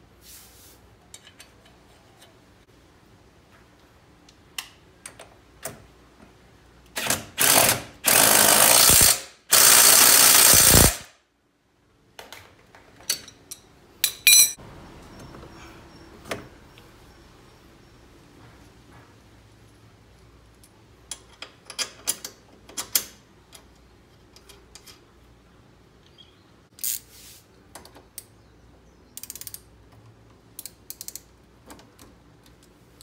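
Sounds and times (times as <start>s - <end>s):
ratchet clicking rapidly: 7.4s - 11.0s
metallic clink: 13.5s - 14.6s.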